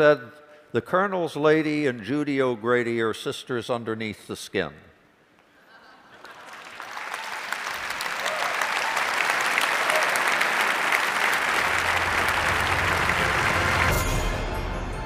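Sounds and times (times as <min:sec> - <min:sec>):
audience applauding: 0:06.2 - 0:14.4
low music: 0:11.6 - 0:15.0.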